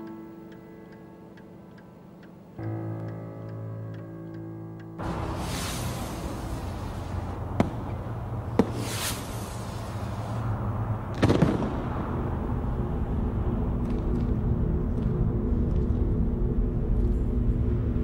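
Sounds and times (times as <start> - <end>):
whooshing hisses: 5.0 - 10.9
heavy blast: 5.0 - 15.5
low explosion rumble: 5.0 - 18.0
sharp cracks: 11.1 - 12.4.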